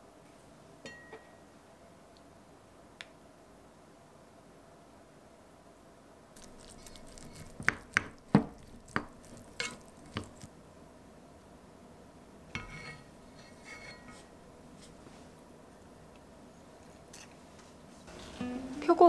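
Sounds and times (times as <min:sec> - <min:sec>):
spoon scraping pot with ring: 0:12.6 - 0:14.3.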